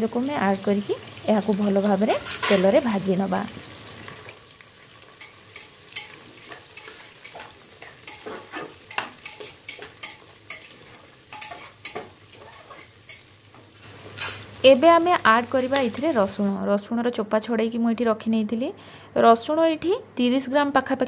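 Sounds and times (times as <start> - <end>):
onions sizzling in hot oil: 0.0 - 16.7
metal ladle scraping pot: 6.0 - 13.2.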